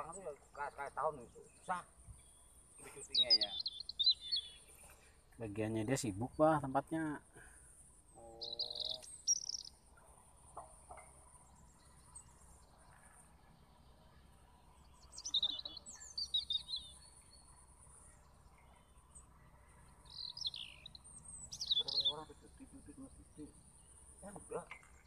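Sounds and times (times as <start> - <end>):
bird chirping: 0.0 - 7.2, 8.0 - 25.0
high insect trill: 5.8 - 10.6.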